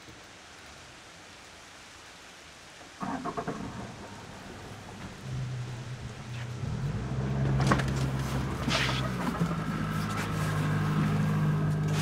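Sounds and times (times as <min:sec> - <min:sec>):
boat engine humming: 0:03.0 - 0:12.0.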